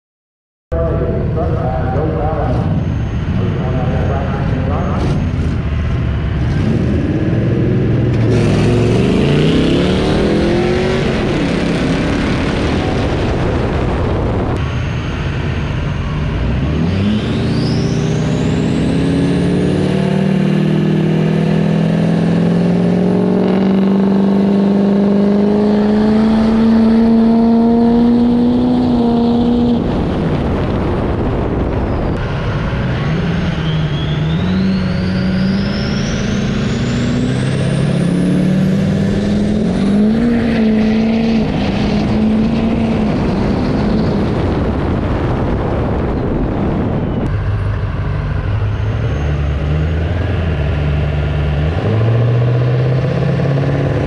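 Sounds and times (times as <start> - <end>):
diesel truck engines revving: 0.7 - 54.0
truck accelerating hard: 0.7 - 54.0
high rising whistle: 14.3 - 20.9, 31.7 - 44.3.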